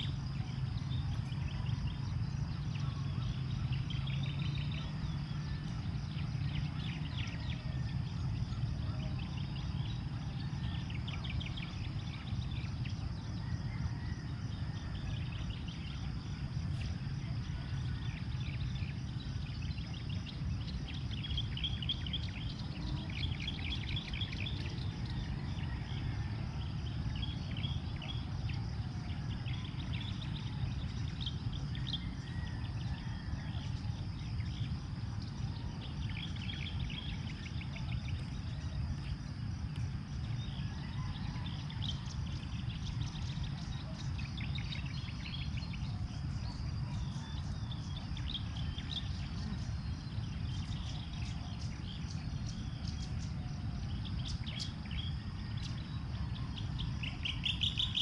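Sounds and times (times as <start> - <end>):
birds chirping: 0.0 - 58.0
high insect drone: 0.0 - 58.0
wind rumble on microphone: 0.0 - 58.0.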